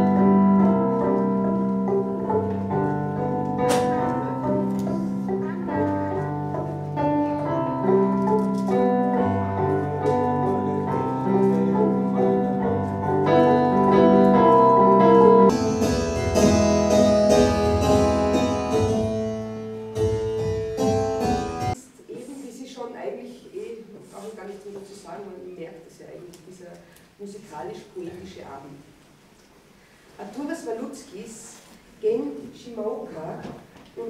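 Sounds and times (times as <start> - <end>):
double bass: 0.0 - 21.8
piano: 0.0 - 21.8.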